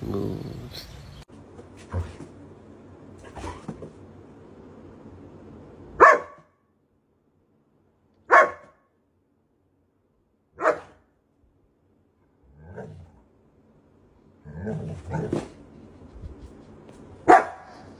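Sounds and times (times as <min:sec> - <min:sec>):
dog barking: 0:06.0 - 0:06.6, 0:08.3 - 0:08.9, 0:10.6 - 0:11.1, 0:17.2 - 0:17.9.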